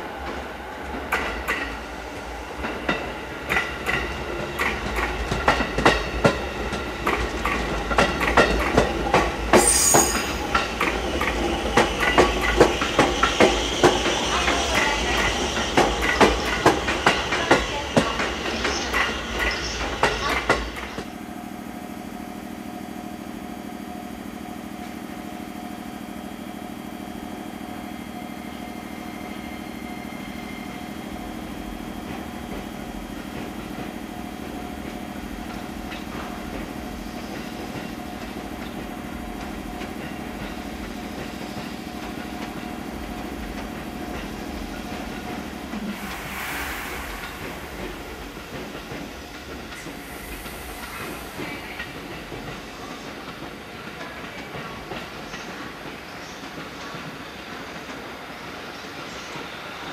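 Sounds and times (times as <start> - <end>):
electric train hum: 0.0 - 59.9
rail rumble: 29.2 - 55.6
faint high whine: 45.7 - 48.8
short burst of hiss: 45.8 - 48.8.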